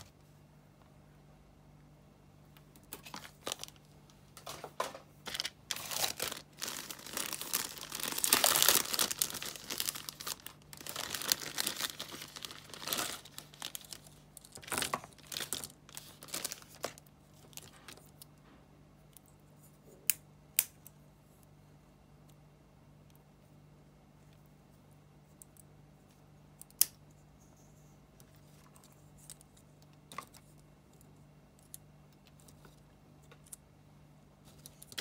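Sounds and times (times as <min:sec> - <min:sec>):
plastic bags crinkling: 0:02.9 - 0:04.6, 0:05.2 - 0:18.1.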